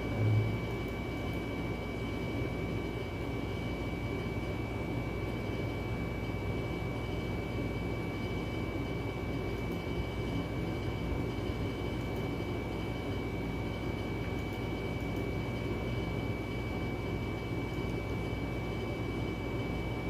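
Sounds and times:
high-pitched whine: 0.0s - 1.0s
mechanical hum and rumble: 0.0s - 20.0s.

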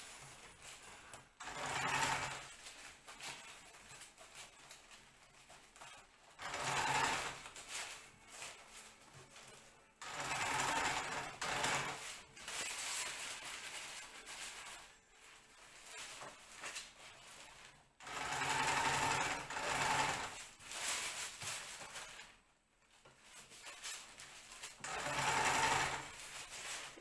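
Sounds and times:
sewing machine stitching: 1.4s - 4.8s, 5.8s - 7.9s, 10.0s - 13.3s, 16.7s - 20.5s, 24.5s - 27.0s.

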